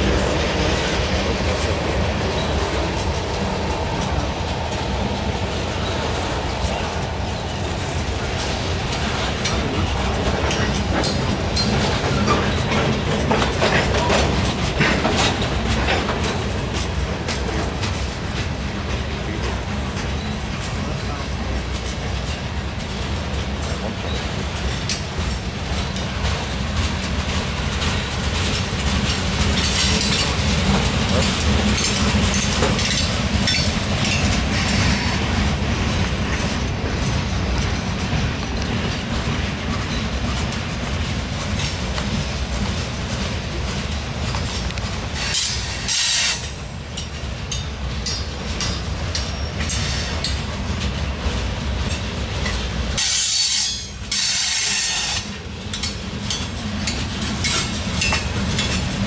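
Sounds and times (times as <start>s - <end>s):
freight train rumbling past: 0.0s - 59.0s
wheels clicking over rail joints: 0.0s - 59.0s.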